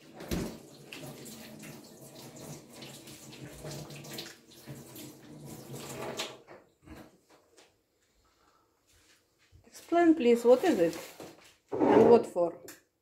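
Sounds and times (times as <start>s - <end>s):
water running from tap: 0.0s - 6.5s.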